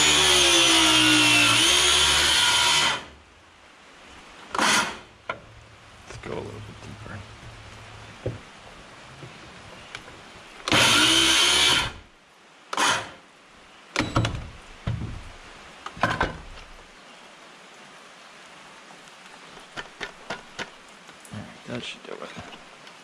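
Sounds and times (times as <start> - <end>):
short knocks: 8.2 - 10.1
handheld power tool running: 10.7 - 12.0.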